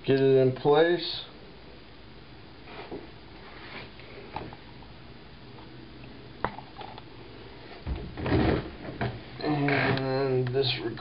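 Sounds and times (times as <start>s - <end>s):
knocks and rustling: 7.7s - 10.0s.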